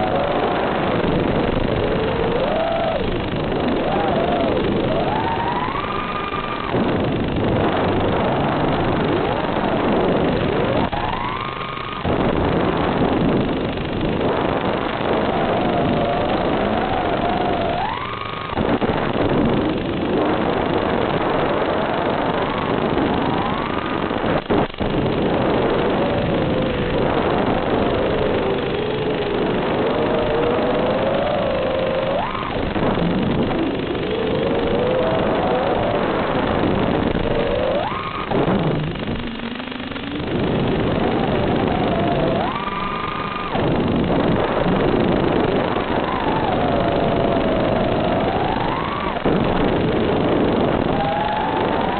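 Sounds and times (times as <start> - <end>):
drone motors whining: 0.0 - 24.4, 25.0 - 51.9.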